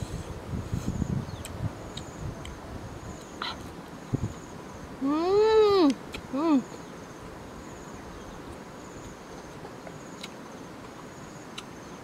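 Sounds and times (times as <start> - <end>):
steady outdoor hiss: 0.0 - 12.0
insects trilling: 2.9 - 12.0.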